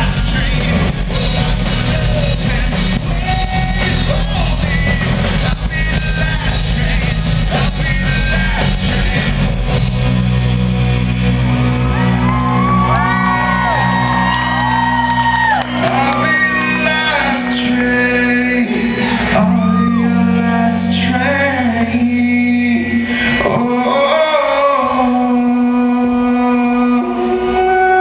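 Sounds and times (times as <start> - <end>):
drumming: 0.0 - 10.3
live rock band: 0.0 - 28.0
person singing: 0.0 - 28.0.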